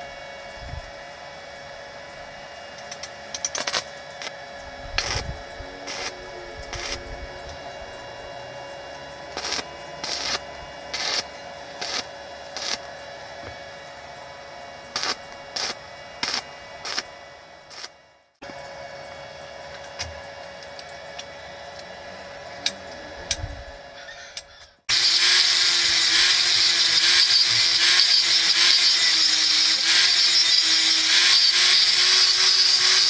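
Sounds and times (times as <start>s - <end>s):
steady hum: 0.0s - 24.0s
welding arc crackling: 2.8s - 7.8s, 9.2s - 13.0s, 14.9s - 18.0s, 24.9s - 33.0s.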